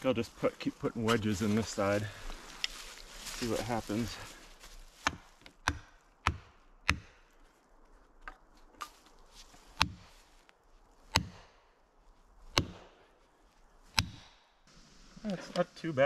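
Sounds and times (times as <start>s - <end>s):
axe hammering wedges: 5.0s - 7.1s, 9.8s - 10.0s, 11.2s - 11.4s, 12.6s - 12.9s, 14.0s - 14.3s.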